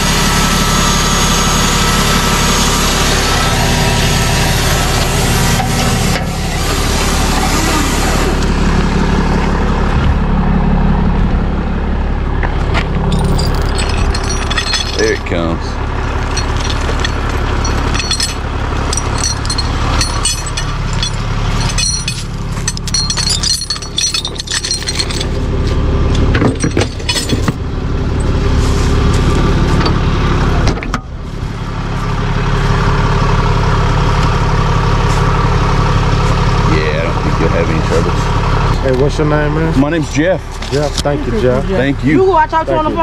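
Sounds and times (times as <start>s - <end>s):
truck engine idling: 0.0s - 43.0s
metal clinks and rattles: 13.0s - 28.4s.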